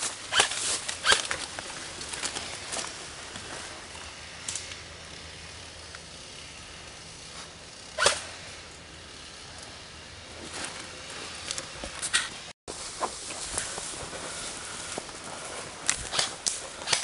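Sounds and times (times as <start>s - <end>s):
airsoft rifle shot: 8.0s - 8.3s.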